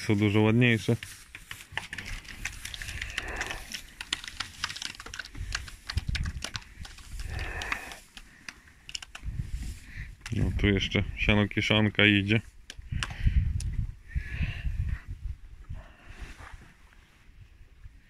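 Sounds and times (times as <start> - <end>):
cattle pulling and chewing hay: 0.0 - 4.6.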